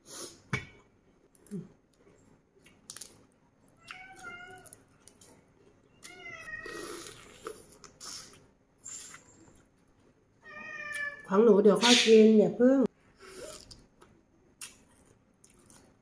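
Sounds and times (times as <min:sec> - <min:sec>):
cat meowing: 0:03.8 - 0:04.7, 0:06.0 - 0:06.8, 0:10.4 - 0:11.3.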